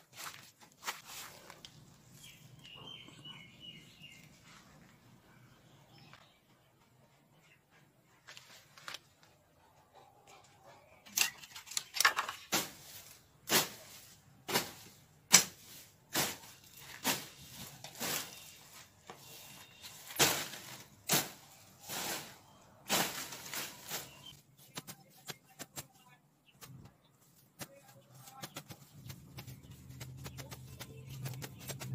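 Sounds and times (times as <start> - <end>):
blade swishing through grass: 12.5 - 18.6.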